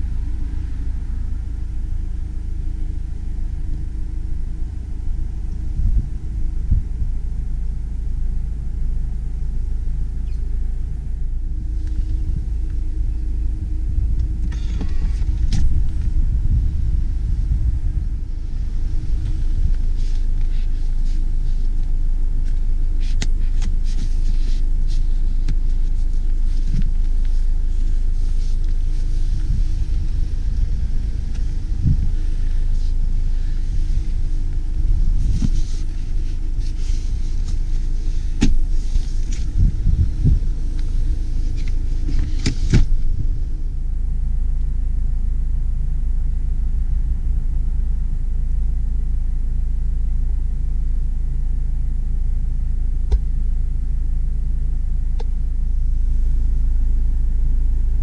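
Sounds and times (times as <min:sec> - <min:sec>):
car engine rumbling: 0:00.0 - 0:58.0
car seats clacking and knocking: 0:14.1 - 0:16.2, 0:35.0 - 0:43.4.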